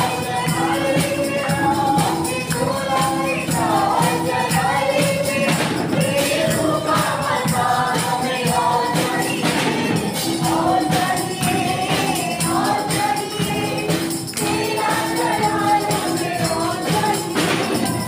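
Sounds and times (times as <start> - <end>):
congregation singing: 0.0 - 18.0
tambourine shaking: 0.0 - 18.0
hand clapping: 11.0 - 16.2.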